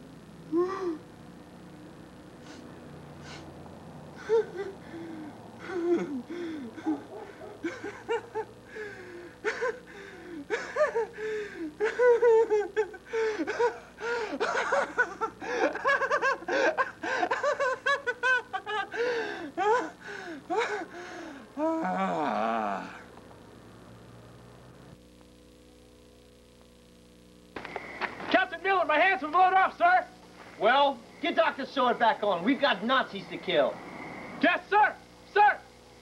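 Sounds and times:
man laughing hard: 4.2 - 4.8, 5.6 - 20.9.

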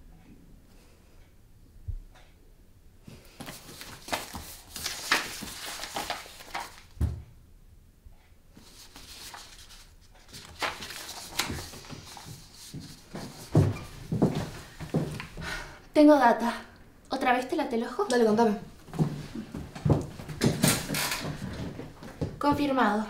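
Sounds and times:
paper rustling: 3.4 - 7.0, 8.6 - 15.3, 18.9 - 22.3.

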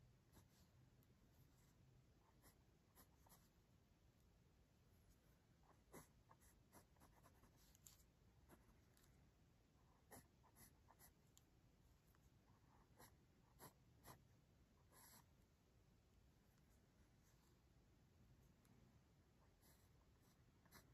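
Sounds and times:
pencil scratching on paper: 2.3 - 3.5, 5.7 - 9.1, 9.9 - 11.2, 12.6 - 14.2, 14.8 - 15.3, 19.4 - 20.9.

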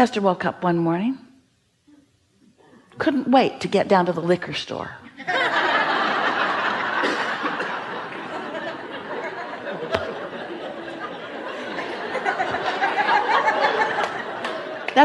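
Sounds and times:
audience laughter: 5.2 - 15.0.

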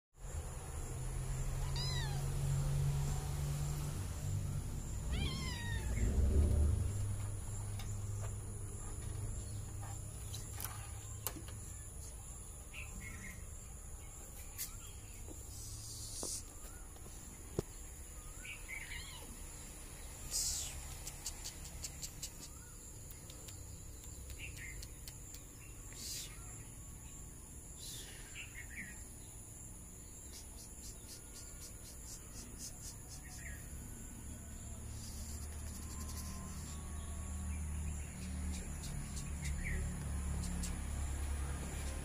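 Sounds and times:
cat meowing: 1.6 - 2.4, 5.0 - 6.2, 18.8 - 19.4
low rumble: 3.0 - 9.8.

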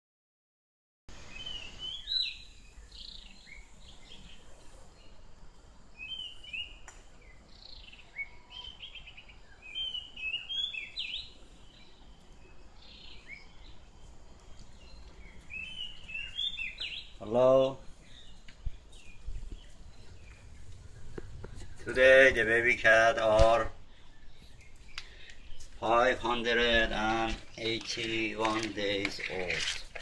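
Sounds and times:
bird singing whistled notes: 1.3 - 5.2, 6.0 - 13.8, 14.8 - 21.0
low outdoor rumble: 17.2 - 30.0.

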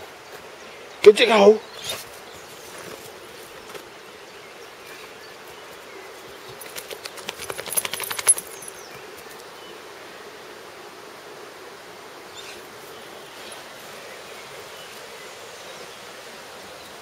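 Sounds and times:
dog ears flapping: 6.6 - 8.6.

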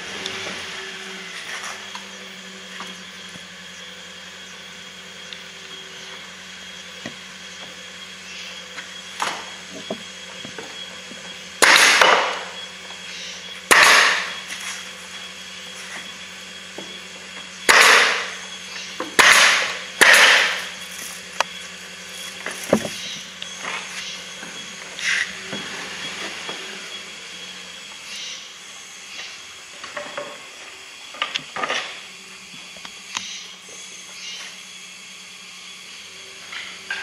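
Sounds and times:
wooden boards knocking: 9.2 - 10.7, 22.7 - 23.1
nail gun firing: 11.6 - 12.5, 13.7 - 14.4, 17.6 - 18.4, 19.1 - 20.7.

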